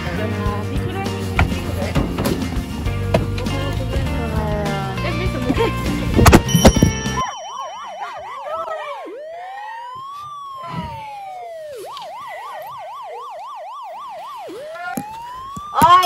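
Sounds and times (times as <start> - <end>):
electronic siren yelp and wail: 6.7 - 16.0.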